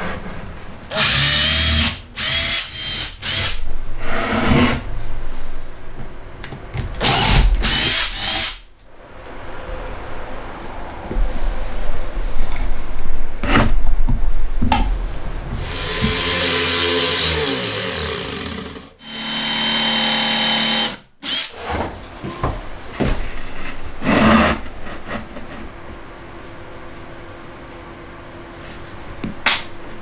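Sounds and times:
electric drill boring wood: 0.9 - 3.6, 7.0 - 8.6, 15.6 - 21.5.

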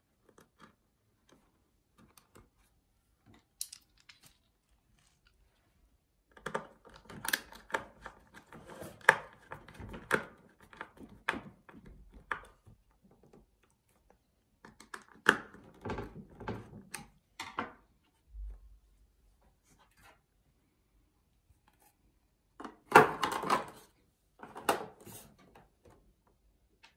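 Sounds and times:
small plastic clicks and knocks: 6.3 - 17.8.

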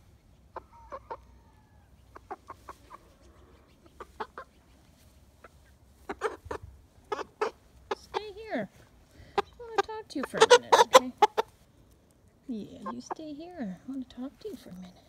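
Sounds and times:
hen clucking: 0.3 - 11.6, 12.2 - 15.0.

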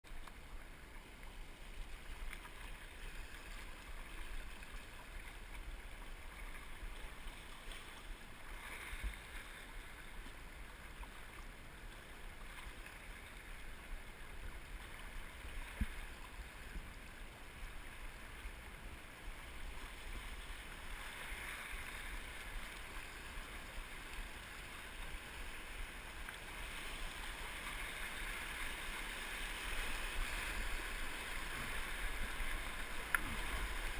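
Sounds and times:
river water rushing over rocks: 20.9 - 33.9.

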